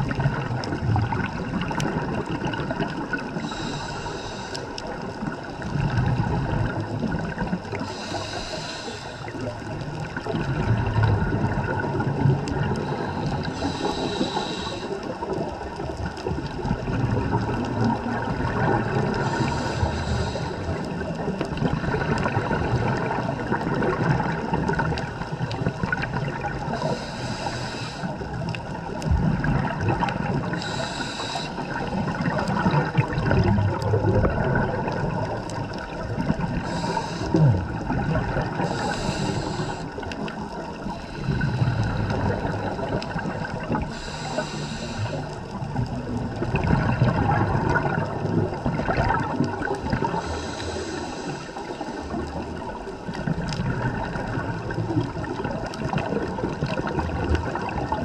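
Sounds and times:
exhaled bubbles rushing: 0.0 - 3.7, 4.8 - 8.0, 9.3 - 27.0, 28.2 - 44.0, 45.0 - 58.0
regulator hissing inhalations: 3.3 - 4.7, 7.8 - 9.4, 12.8 - 15.2, 19.2 - 20.8, 26.7 - 28.2, 30.5 - 31.8, 36.6 - 37.4, 38.6 - 40.0, 40.9 - 42.9, 43.8 - 45.3, 50.2 - 52.2.

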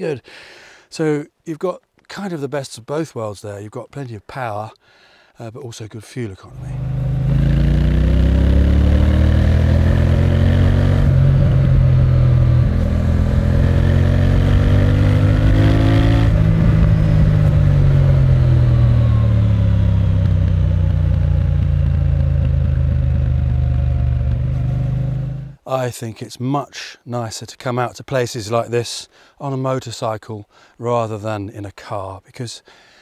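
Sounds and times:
motorcycle engine revving: 6.5 - 25.6.

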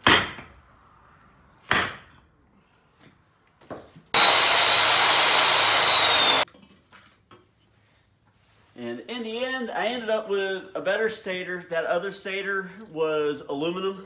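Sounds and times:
chop saw cutting metal: 4.2 - 6.5.

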